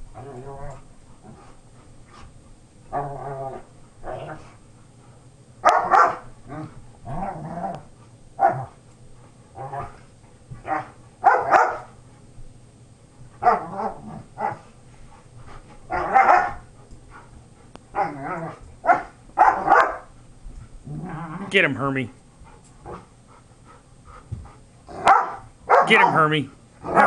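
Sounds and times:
dogs barking and growling: 0:00.1 - 0:02.2, 0:02.9 - 0:04.6, 0:05.6 - 0:08.9, 0:09.5 - 0:12.0, 0:13.4 - 0:14.8, 0:15.8 - 0:17.3, 0:17.9 - 0:20.2, 0:20.8 - 0:21.6, 0:24.8 - 0:26.2, 0:26.8 - 0:27.0.

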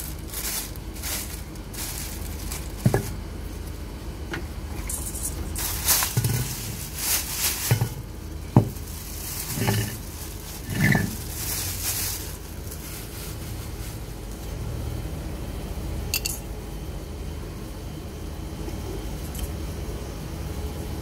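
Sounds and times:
plastic bag rustling: 0:00.0 - 0:03.9, 0:04.7 - 0:14.6
low background rumble: 0:00.0 - 0:21.0.

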